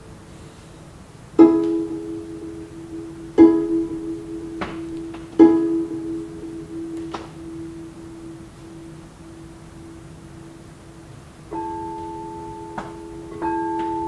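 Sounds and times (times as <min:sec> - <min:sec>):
harp plucking single note: 0:01.4 - 0:10.6.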